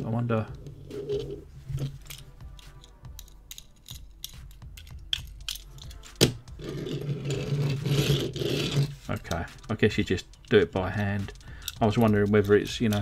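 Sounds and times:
metal toy clicking in fingers: 2.1 - 6.1, 10.0 - 13.0.

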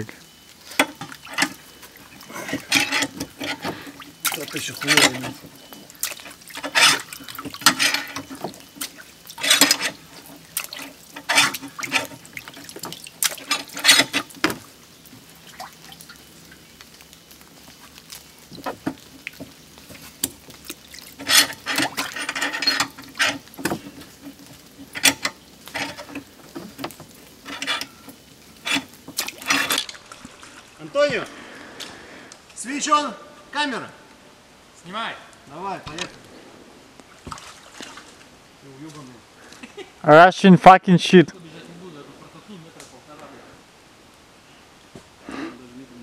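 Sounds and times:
puddle water splashing: 0.0 - 32.4, 36.0 - 39.8.

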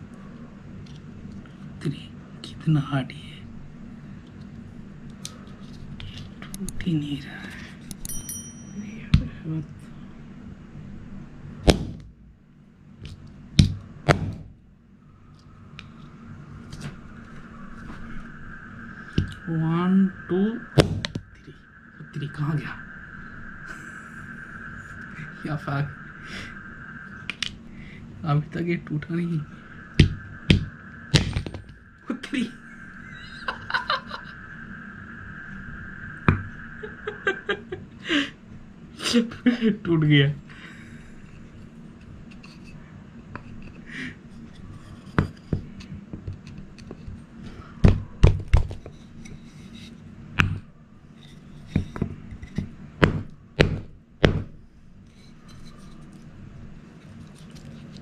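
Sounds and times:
hammer striking plastic band: 11.7 - 12.1, 13.6 - 14.5, 53.0 - 54.5
hammer knocking on plastic: 30.0 - 30.7, 53.0 - 54.5.

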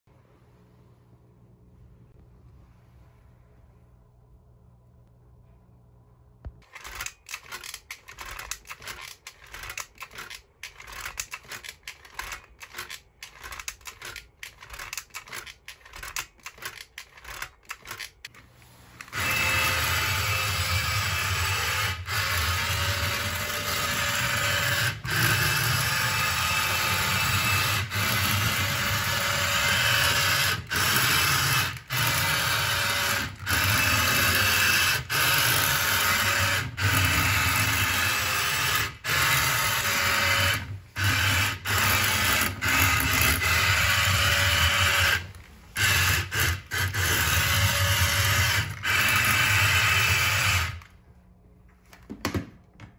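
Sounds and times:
toy car motor whirring: 6.6 - 18.3, 19.0 - 50.9.

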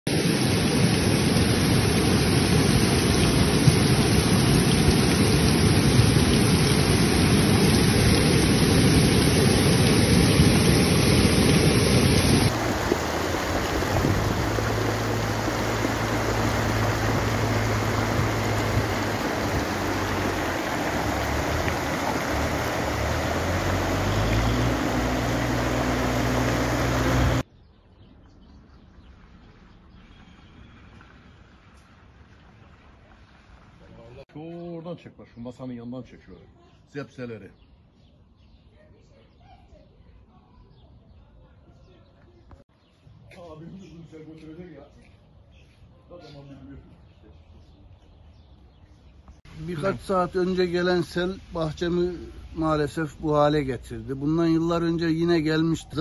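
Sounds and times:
floodwater rushing: 0.1 - 27.4.

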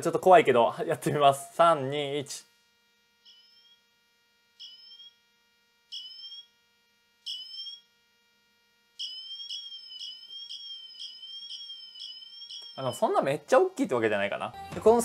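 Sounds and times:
watch siren chirps and sweeps: 3.2 - 3.9, 4.6 - 8.2, 8.9 - 13.3.

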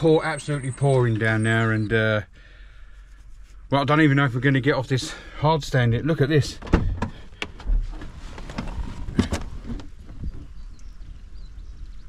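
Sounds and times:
birds chirping faintly: 9.6 - 12.0.

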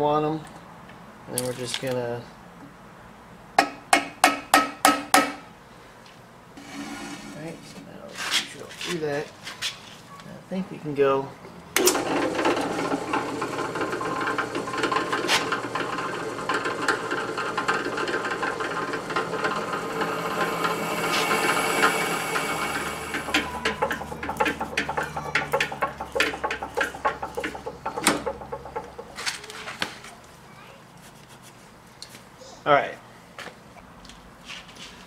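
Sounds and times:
drill grinding into metal: 6.6 - 7.6, 11.8 - 29.2
drill press motor hum: 11.8 - 29.2
rapid sharp clicks and rattles: 12.0 - 29.6.

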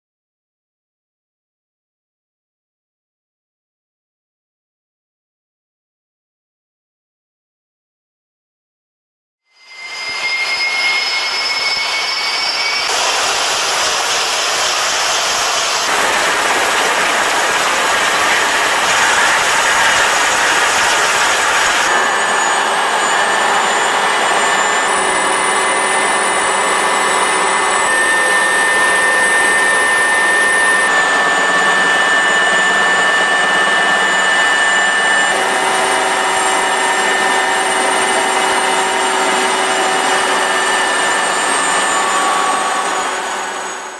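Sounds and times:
helicopter turbine whine: 9.6 - 43.9.

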